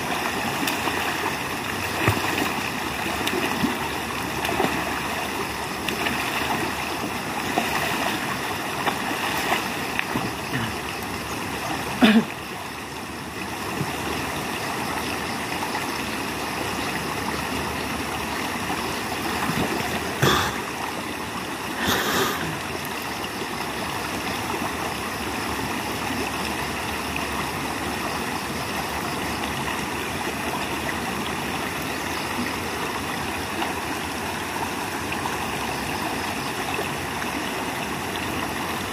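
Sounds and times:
river flowing over stones: 0:00.0 - 0:38.9
person splashing in water: 0:00.2 - 0:03.8, 0:07.4 - 0:10.4
short splashes: 0:00.5 - 0:03.8.

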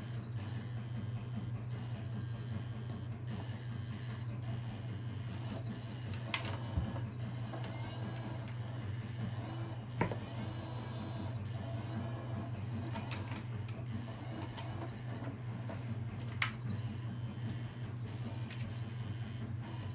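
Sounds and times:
electronic chirping toy: 0:00.0 - 0:00.8, 0:01.7 - 0:02.7, 0:03.4 - 0:04.5, 0:05.2 - 0:06.3, 0:07.1 - 0:15.4, 0:16.2 - 0:17.3, 0:18.0 - 0:19.0, 0:19.6 - 0:19.9
steady low hum: 0:00.0 - 0:19.9.

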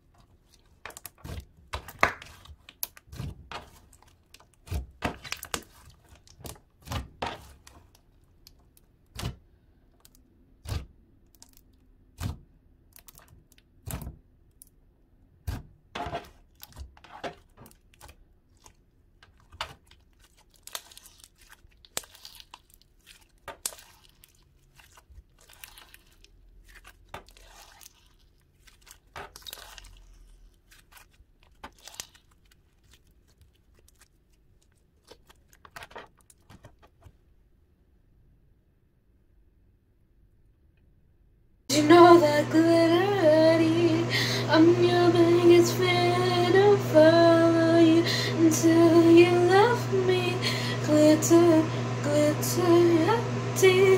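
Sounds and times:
slime stretching and tearing: 0:00.0 - 0:14.7, 0:15.4 - 0:37.0
slime squished by fingers: 0:17.6 - 0:36.6.

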